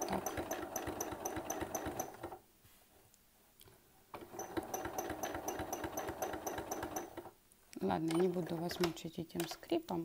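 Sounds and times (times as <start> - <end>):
sewing machine stitching: 0.0 - 2.4, 4.2 - 7.3.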